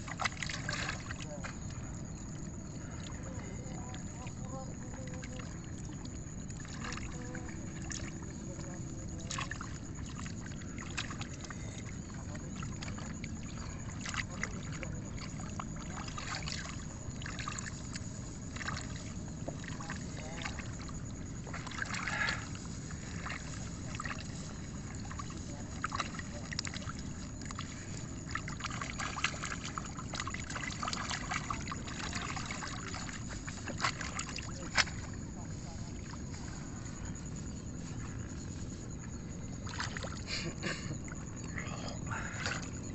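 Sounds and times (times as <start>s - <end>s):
water splashing: 0.0s - 38.8s, 39.4s - 42.9s
wet mud squelching: 19.7s - 37.2s.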